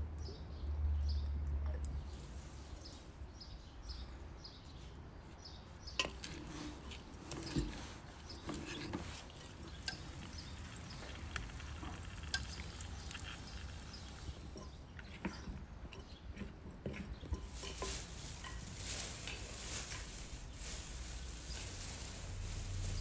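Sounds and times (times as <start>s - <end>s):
salad stirred in glass bowl: 8.5s - 15.4s, 16.9s - 18.7s.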